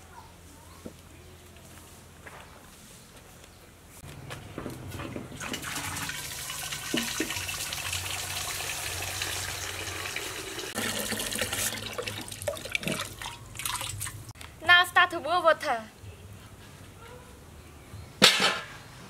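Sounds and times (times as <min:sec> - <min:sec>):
water splashing into metal basin: 0:05.4 - 0:14.2.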